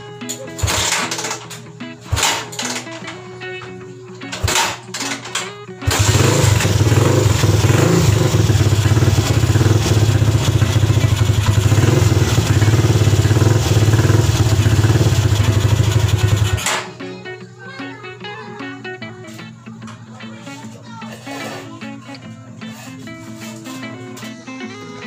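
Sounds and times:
dirt bike engine running: 0.6 - 1.4, 4.4 - 16.8.

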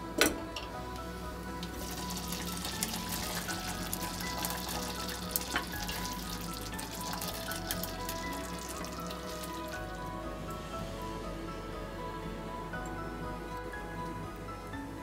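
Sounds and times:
background music: 0.0 - 15.0
thick soup bubbling: 0.8 - 11.0.

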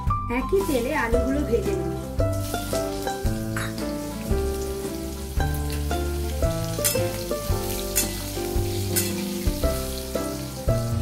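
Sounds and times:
instrumental background music: 0.0 - 11.0
potatoes sizzling in hot oil: 0.4 - 11.0.

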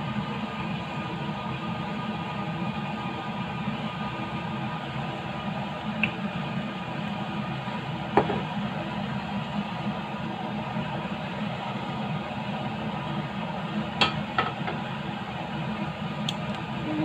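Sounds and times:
kitchen mechanical hum: 0.0 - 17.0
pan knocking on glass cooktop: 8.2 - 8.5.

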